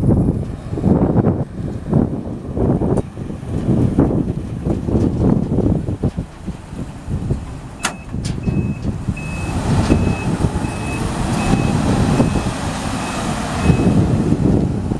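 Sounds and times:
truck engine rumbling: 0.0s - 14.9s
wind on microphone: 0.0s - 14.9s
truck back-up alarm beeping: 7.8s - 14.2s.

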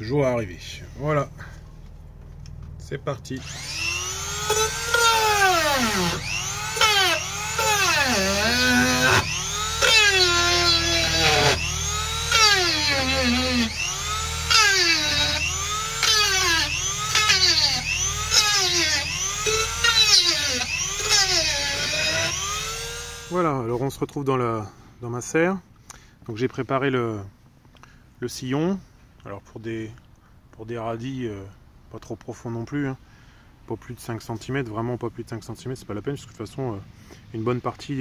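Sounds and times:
drill-sander motor whine: 3.4s - 23.4s.

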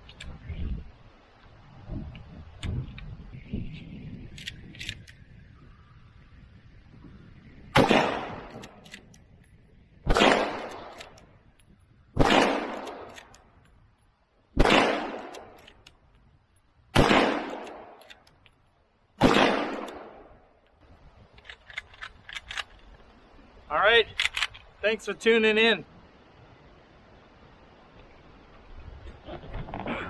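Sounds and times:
rifle shots echoing: 7.8s - 8.7s, 10.1s - 11.1s, 12.2s - 13.2s, 14.6s - 15.6s, 17.0s - 18.0s, 19.2s - 20.4s.

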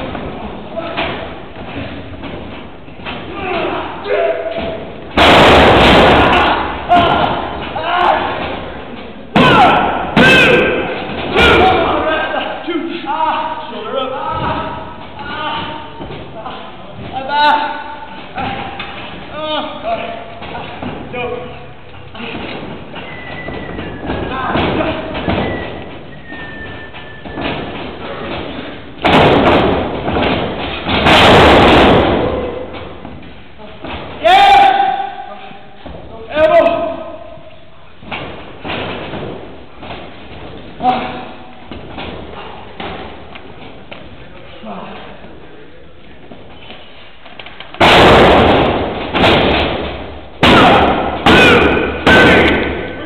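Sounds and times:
heavy impacts on wrestling ring canvas: 0.0s - 12.2s, 14.2s - 19.3s, 20.2s - 21.5s, 22.2s - 35.1s, 38.0s - 44.2s, 47.8s - 53.0s
bodies slamming onto wrestling ring: 4.5s - 8.7s, 27.2s - 33.0s, 47.8s - 52.8s.

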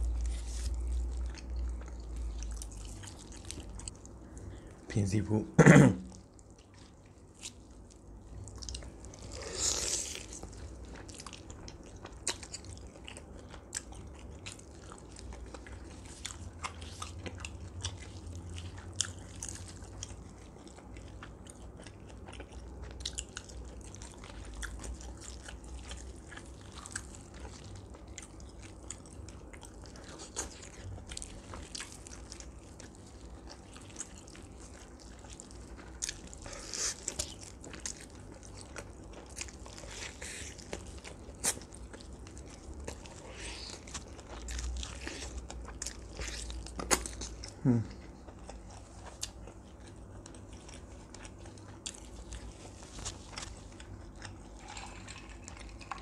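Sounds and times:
chewing and biting: 0.0s - 4.4s, 6.1s - 56.0s
crisp skin crunching: 0.0s - 4.6s, 23.1s - 56.0s.

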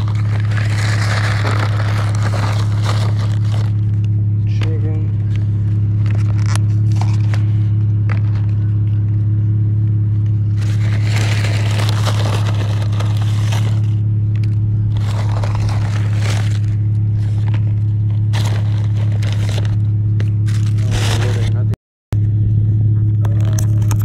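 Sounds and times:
rustling and crunching of food: 0.0s - 4.1s, 5.1s - 9.3s, 10.2s - 21.7s
low hum: 0.0s - 24.0s.

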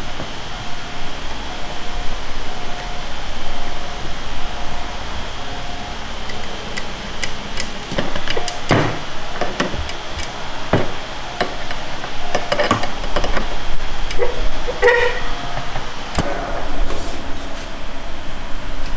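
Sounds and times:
metallic clicks of clamp handles: 6.3s - 8.8s.

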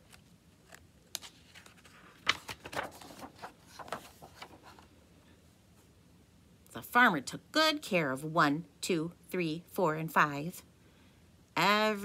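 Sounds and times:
book pages turning: 0.0s - 4.9s.

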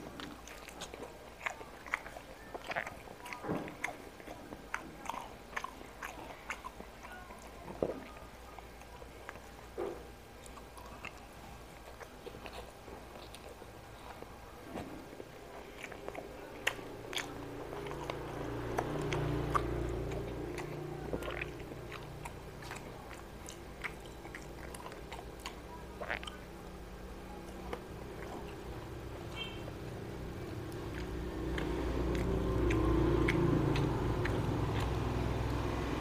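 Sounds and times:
chewing with lip smacks: 0.0s - 36.0s
sharp mouth clicks: 30.6s - 35.6s.

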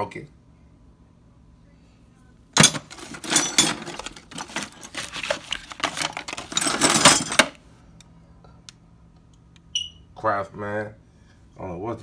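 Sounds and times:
metal tools clinking: 2.6s - 7.6s.

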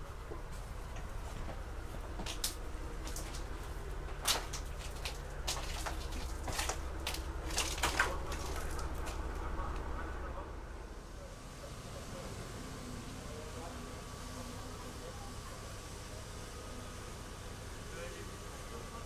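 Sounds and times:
steady low rumble: 0.0s - 11.4s
footsteps and small knocks: 0.2s - 9.9s.

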